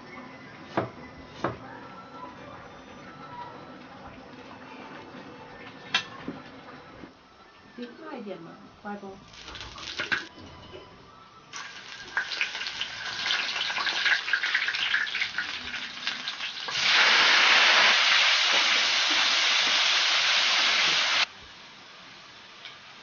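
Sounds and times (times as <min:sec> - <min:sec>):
food sizzling in oil: 0:09.2 - 0:10.3, 0:11.5 - 0:23.0
hot oil crackling and spitting: 0:09.3 - 0:10.3, 0:11.5 - 0:21.4.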